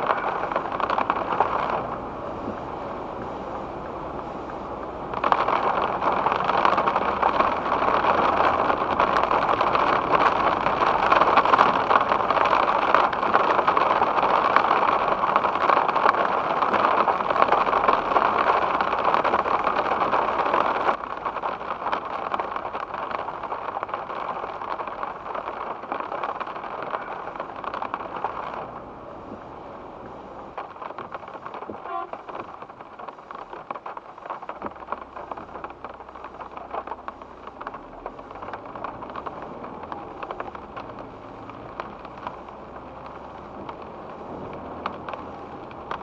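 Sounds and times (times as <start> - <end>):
rain and spray hitting car: 0.0 - 46.0.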